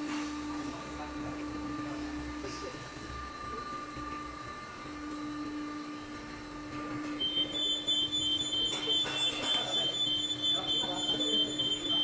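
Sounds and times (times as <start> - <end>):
hydraulic power unit humming: 0.0 - 12.0
high-pitched alarm-like tone: 7.2 - 12.0.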